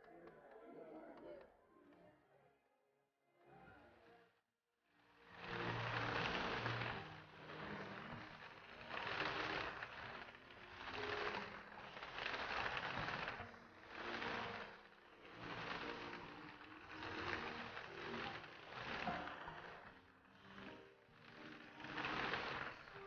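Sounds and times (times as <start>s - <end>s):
faint music: 5.0s - 23.0s
heavy rain hissing: 5.3s - 23.0s.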